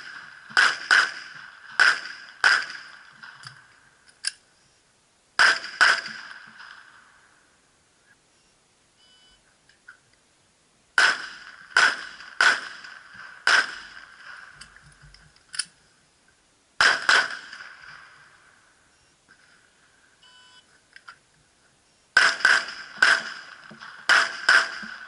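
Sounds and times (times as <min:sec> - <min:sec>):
pistol shots with echo: 0:00.0 - 0:03.7, 0:05.4 - 0:07.2, 0:11.0 - 0:14.6, 0:16.8 - 0:18.5, 0:22.2 - 0:25.0
shot timer beep: 0:20.2 - 0:20.6.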